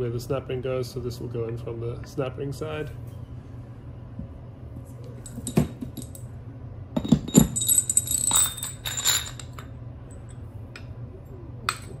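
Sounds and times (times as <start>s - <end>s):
metallic jingling ring: 7.0s - 9.6s.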